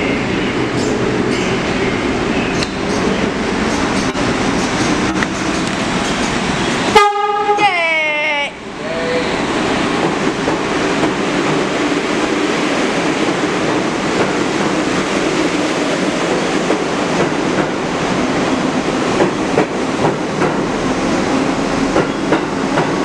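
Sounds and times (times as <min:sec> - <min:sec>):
subway train rumble: 0:00.0 - 0:23.0
wheels clacking over rail joints: 0:21.9 - 0:23.0.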